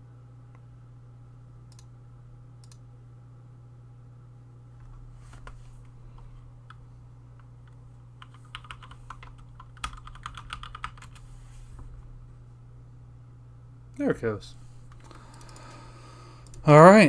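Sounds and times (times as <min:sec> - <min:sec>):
low hum: 0:00.0 - 0:17.0
keyboard typing: 0:07.6 - 0:11.3.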